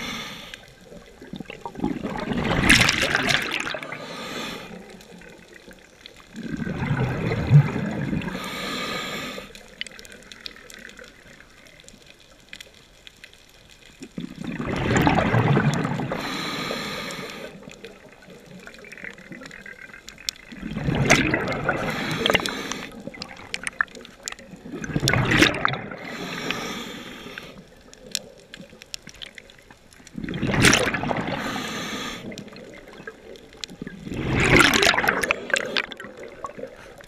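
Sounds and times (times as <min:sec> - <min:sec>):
scuba regulator breathing underwater: 0:00.0 - 0:01.0, 0:01.7 - 0:05.2, 0:06.4 - 0:10.2, 0:14.5 - 0:17.9, 0:20.6 - 0:24.0, 0:24.7 - 0:28.0, 0:30.2 - 0:33.3, 0:34.0 - 0:37.0
exhaled bubbles: 0:00.0 - 0:11.9, 0:14.0 - 0:37.0.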